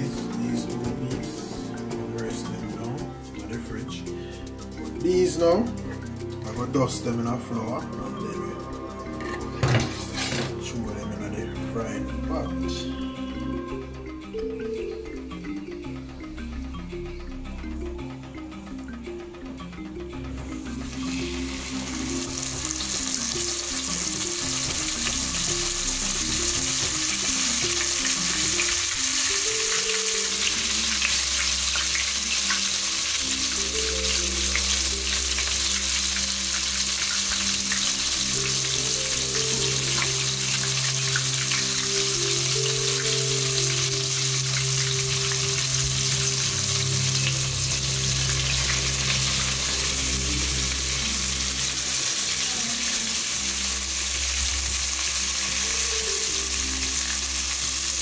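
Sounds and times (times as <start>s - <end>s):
background music: 0.0s - 58.0s
fish frying in oil: 20.6s - 58.0s.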